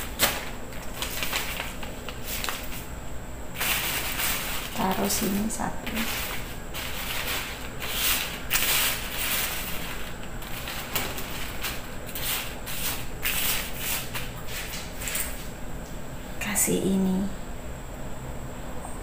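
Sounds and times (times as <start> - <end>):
dry noodles rustling on newspaper: 0.0 - 2.9, 3.6 - 15.3.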